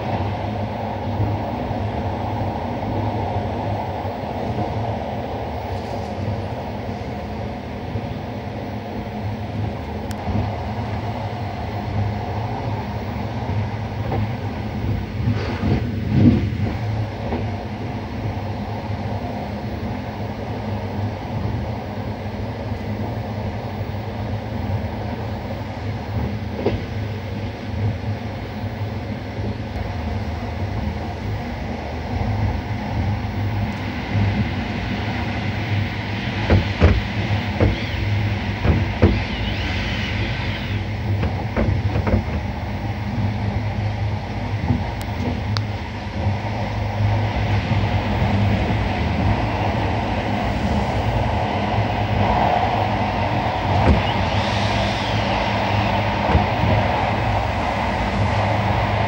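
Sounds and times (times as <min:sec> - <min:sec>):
electric locomotive running: 0:00.0 - 0:59.0
wheels rattling over track: 0:32.9 - 0:59.0.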